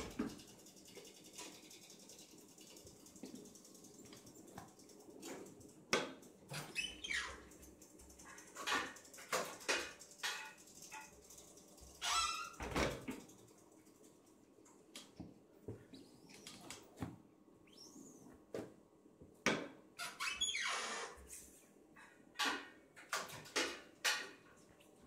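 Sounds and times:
squeaks and knocks of press: 6.5s - 7.6s, 12.0s - 13.0s, 20.0s - 21.3s.

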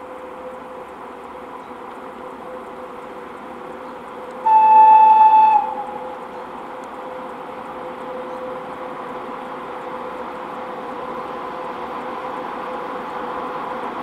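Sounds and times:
freight train running noise: 0.0s - 14.0s
locomotive horn blast: 4.4s - 6.2s.

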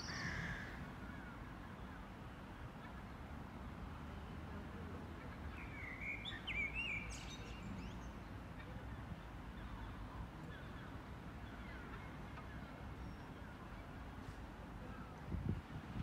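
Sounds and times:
low background noise: 0.0s - 16.0s
birds singing: 5.5s - 13.6s.

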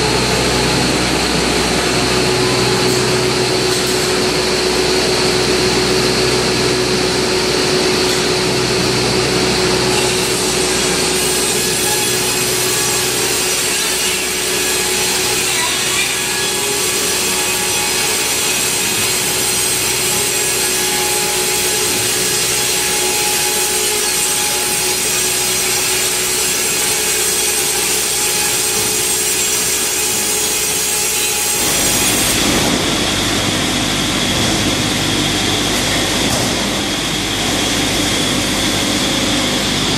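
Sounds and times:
machine whine: 0.0s - 39.9s
bandsaw sawing through log: 9.2s - 32.8s.

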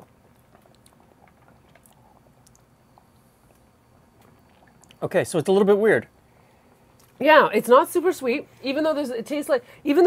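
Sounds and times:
people sipping a drink: 0.0s - 5.1s.

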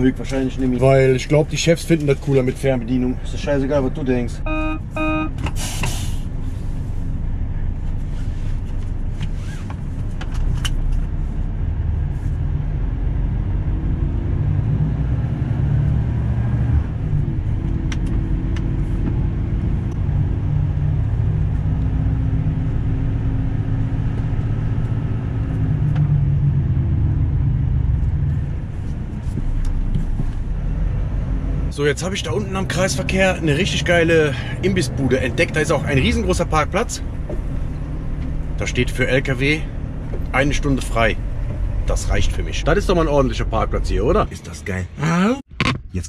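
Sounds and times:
truck diesel engine running: 15.6s - 44.3s.

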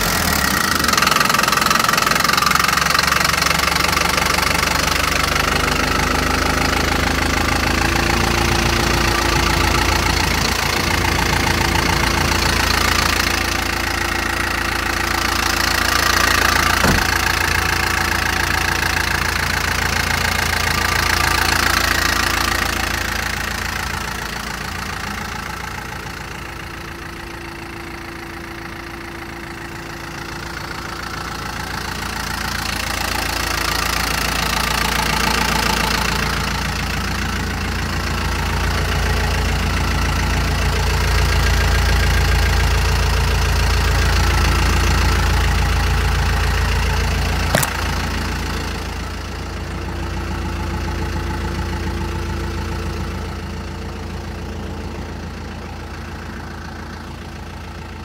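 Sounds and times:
truck engine idling: 0.0s - 58.0s
sharp click: 47.5s - 47.9s.

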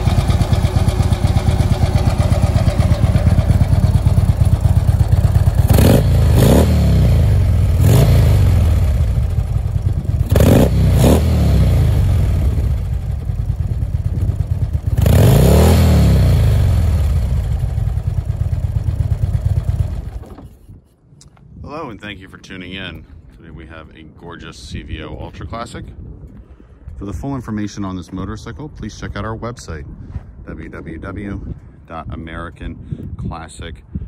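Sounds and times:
motorcycle engine revving: 0.0s - 20.5s.

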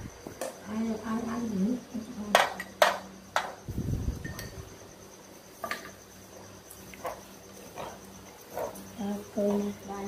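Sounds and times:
crickets chirping: 0.0s - 10.0s.

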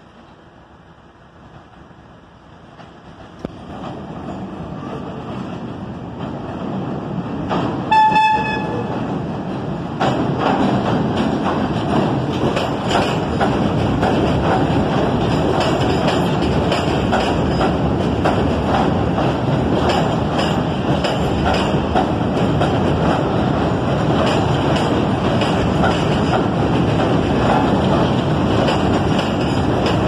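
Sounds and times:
subway train passing: 0.0s - 30.0s
wheels clacking over rail joints: 2.6s - 30.0s
train horn blast: 7.9s - 8.9s.

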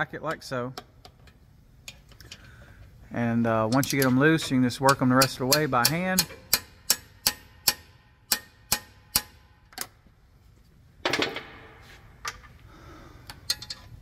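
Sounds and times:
wrench clicking: 3.7s - 10.0s, 13.2s - 14.0s.

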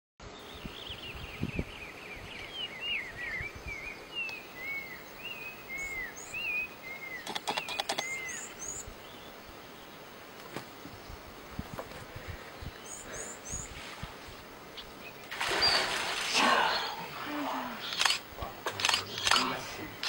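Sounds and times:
birds whistling: 0.5s - 9.3s, 14.8s - 18.2s
high bird chirps: 2.9s - 8.8s, 14.8s - 15.9s
sharp clicks: 7.2s - 8.1s, 17.9s - 19.5s.

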